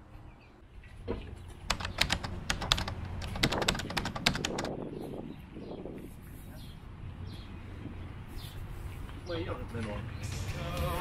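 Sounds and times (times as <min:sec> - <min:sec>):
sharp clicks and taps: 0:01.7 - 0:04.7.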